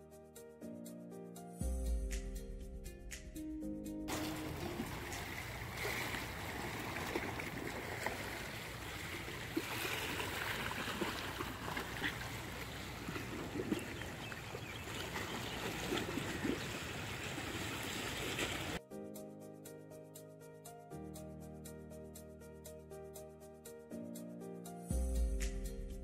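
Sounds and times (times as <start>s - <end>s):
waves lapping against seawall: 4.1s - 18.8s.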